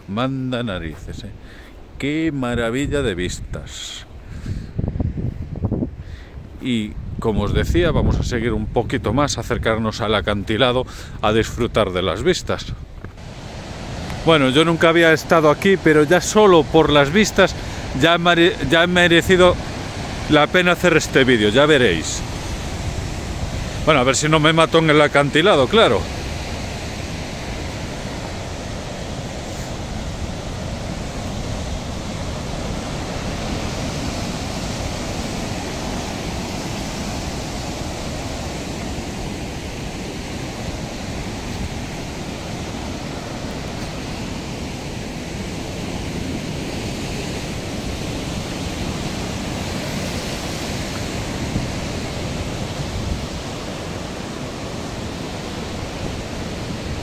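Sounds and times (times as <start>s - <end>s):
sea surf rushing: 0.0s - 57.0s
wind on microphone: 2.5s - 10.4s, 21.4s - 24.4s, 25.6s - 57.0s.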